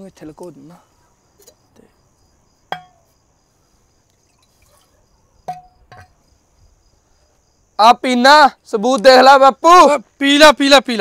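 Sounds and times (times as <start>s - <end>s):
crickets chirring: 0.0s - 11.0s
bottle clinking: 2.7s - 3.1s, 5.5s - 6.2s.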